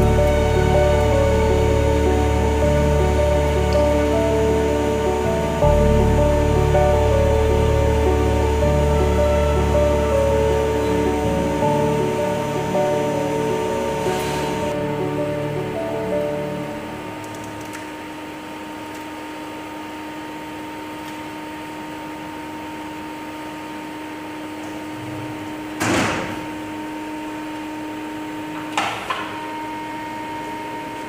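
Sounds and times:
lathe humming: 0.0 - 20.8.

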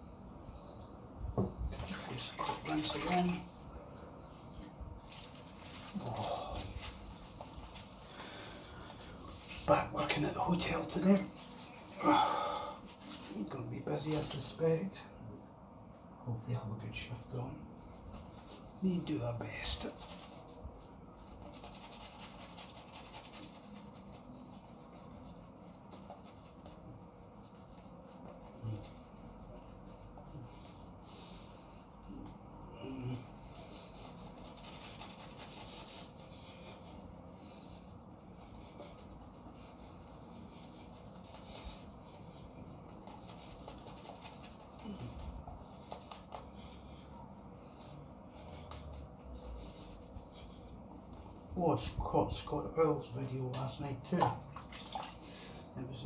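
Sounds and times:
shaving brush swishing on skin: 4.2 - 12.0, 17.8 - 32.6, 33.2 - 52.7.

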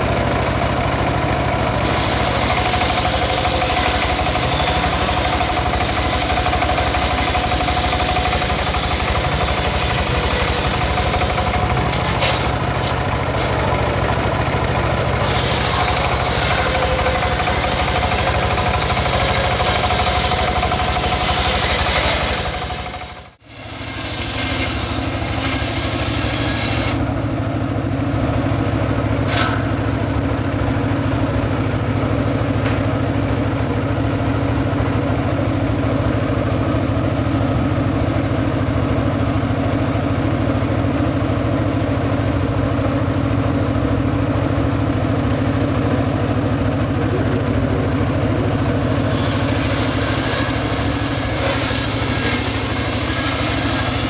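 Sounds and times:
circular sawmill running: 0.0 - 54.0
saw blade hissing through wood: 1.8 - 11.8, 15.2 - 27.0, 48.8 - 54.0.

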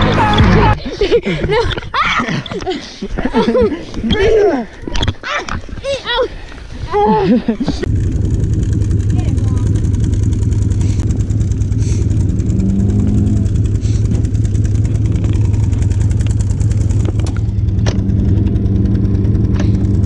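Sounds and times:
boat motor running: 7.7 - 20.0.

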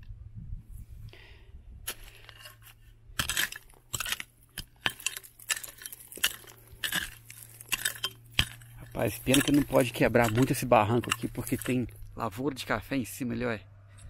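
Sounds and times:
digging tool clinking on stones: 1.9 - 12.3.

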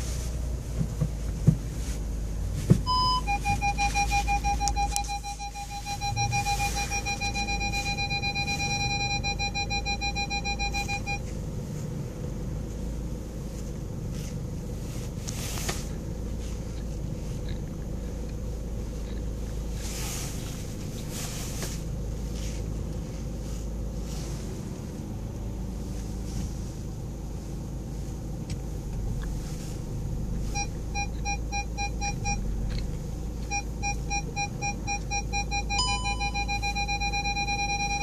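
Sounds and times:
car engine idling: 0.0 - 38.0
parking sensor beeping rapidly: 2.8 - 11.4, 30.4 - 38.0.

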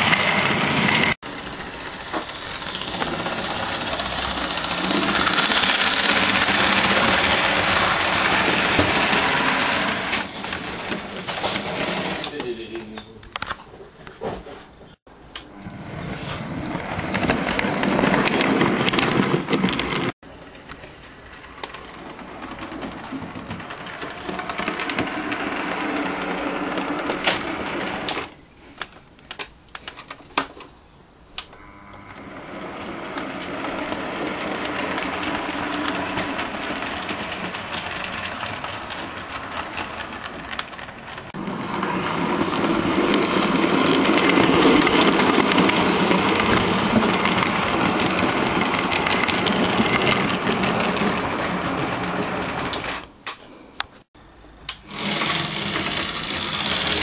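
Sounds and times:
model train wheels clicking on track: 0.0 - 12.5, 17.0 - 28.3, 32.3 - 53.1, 54.7 - 57.0
small electric motor whirring: 54.8 - 57.0.

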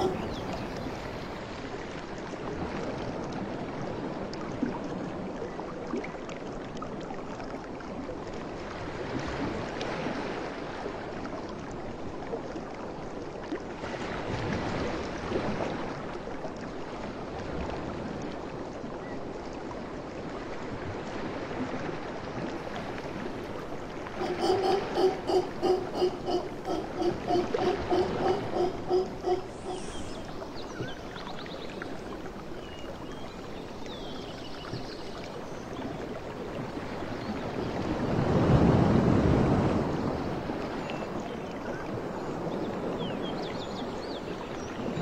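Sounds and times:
ocean surf: 0.0 - 1.5, 22.6 - 30.9, 37.7 - 41.2.

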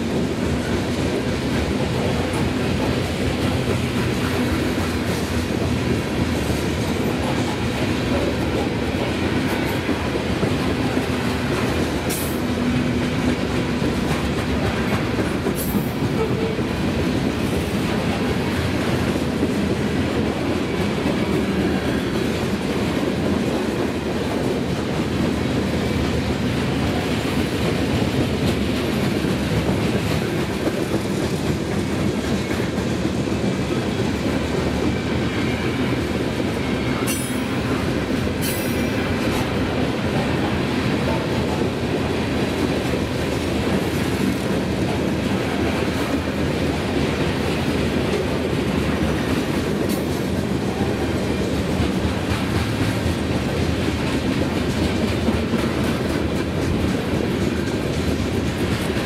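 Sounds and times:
freight train rumbling past: 0.0 - 59.0.

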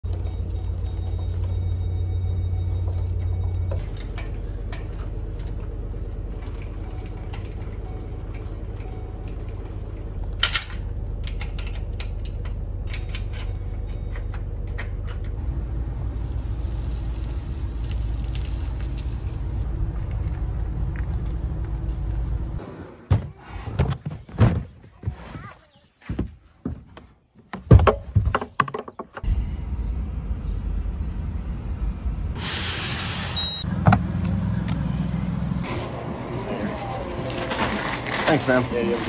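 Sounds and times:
trailer chains clinking and rattling: 0.0 - 15.5.

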